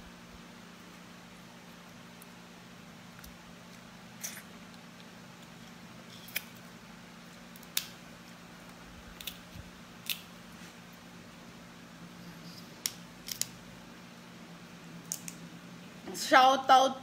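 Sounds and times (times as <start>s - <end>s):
steady low hum: 0.0s - 17.0s
crab shell cracking: 9.1s - 10.3s, 12.8s - 13.6s.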